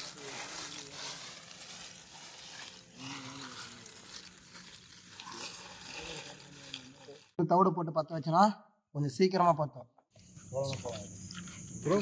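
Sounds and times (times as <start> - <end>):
charcoal clinking and crunching: 0.0 - 7.4.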